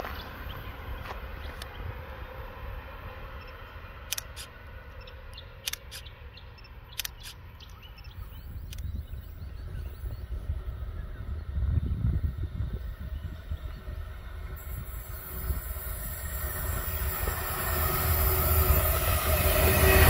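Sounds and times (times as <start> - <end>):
distant train rumble: 0.0 - 20.0
sharp clicks: 4.1 - 7.8, 8.6 - 9.0.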